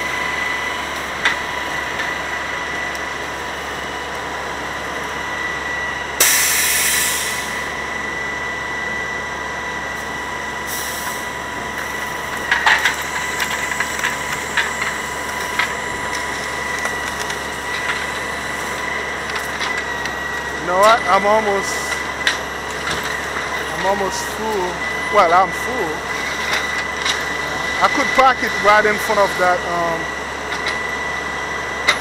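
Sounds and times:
truck mechanical whine: 0:00.0 - 0:32.0
sharp hiss: 0:06.2 - 0:07.5
dry fronds and wood cracking: 0:12.0 - 0:24.6.

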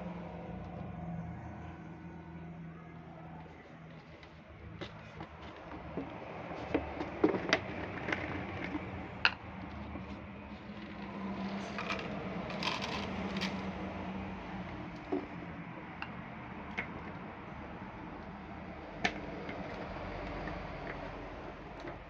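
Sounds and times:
kibble rattling into plastic bowl: 0:06.6 - 0:13.7.

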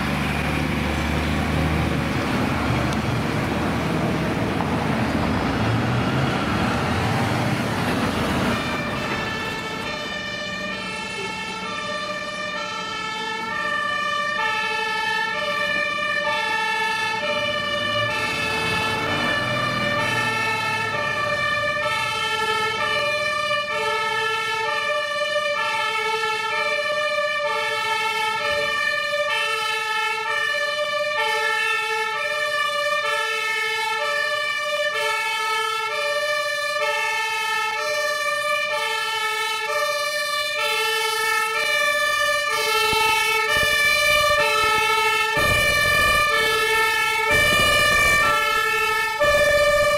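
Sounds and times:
heavy truck rumbling past: 0:00.0 - 0:24.6
two-tone fire truck siren: 0:00.0 - 0:49.9.

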